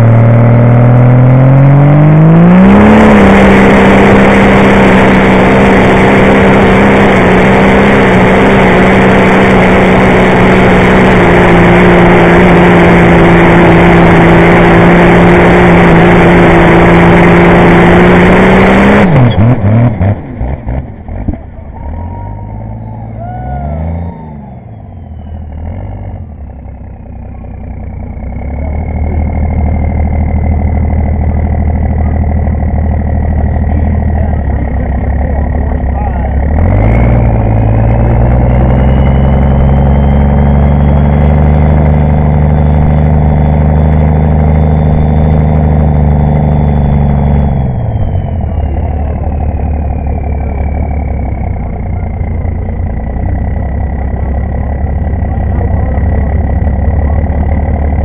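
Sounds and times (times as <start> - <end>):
tractor engine revving: 0.0 - 58.0
high whistle: 21.8 - 25.5, 44.5 - 51.4.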